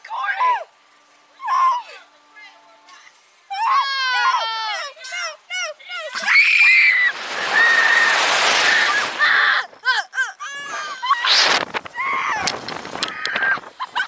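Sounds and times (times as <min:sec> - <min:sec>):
girls screaming: 0:03.5 - 0:04.9, 0:06.0 - 0:13.7.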